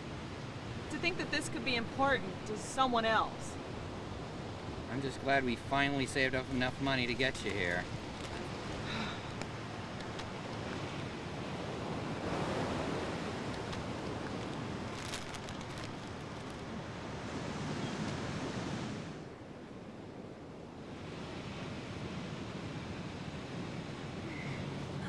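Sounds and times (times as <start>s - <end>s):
steady rushing outdoor noise: 0.0s - 25.0s.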